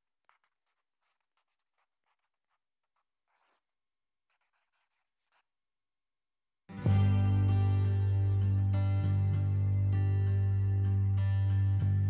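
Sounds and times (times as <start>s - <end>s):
pen scratching on paper: 0.0s - 5.6s.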